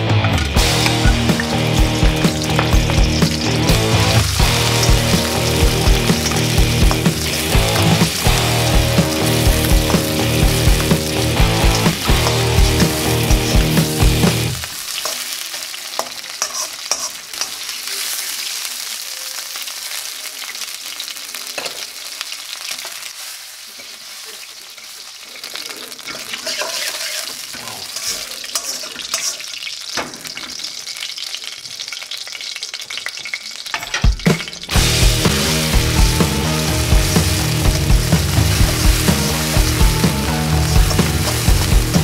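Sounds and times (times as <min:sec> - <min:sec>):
music with a beat: 0:00.0 - 0:14.6, 0:34.1 - 0:42.0
spatula scraping and tapping wok: 0:00.2 - 0:03.6, 0:04.7 - 0:14.3, 0:15.0 - 0:17.8, 0:26.0 - 0:30.5, 0:40.5 - 0:42.0
shrimp sizzling in oil: 0:00.5 - 0:42.0.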